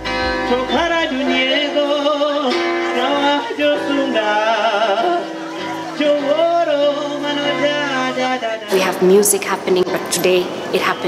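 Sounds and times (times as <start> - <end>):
acoustic guitar: 0.0 - 11.0
woman singing: 6.1 - 11.0.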